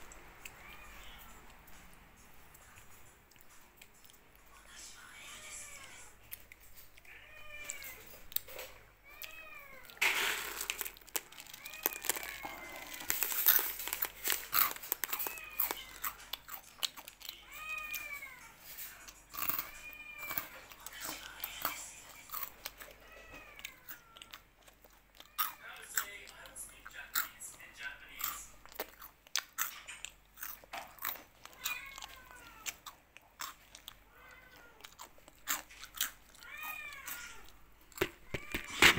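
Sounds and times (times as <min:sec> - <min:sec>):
cat meowing: 0:00.5 - 0:01.6, 0:05.2 - 0:06.2, 0:07.0 - 0:16.5, 0:17.3 - 0:24.4, 0:25.2 - 0:26.0, 0:31.4 - 0:32.8, 0:34.1 - 0:35.1, 0:36.3 - 0:37.6, 0:38.2 - 0:38.9
clicks and crunching: 0:06.2 - 0:38.9.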